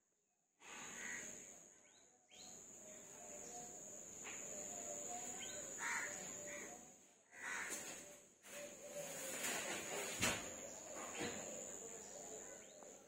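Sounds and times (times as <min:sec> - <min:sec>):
bird chirps: 0:01.8 - 0:06.8.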